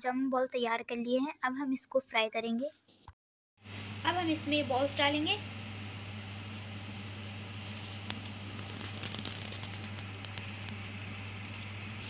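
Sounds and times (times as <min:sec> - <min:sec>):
frying in hot oil: 0:03.7 - 0:12.0.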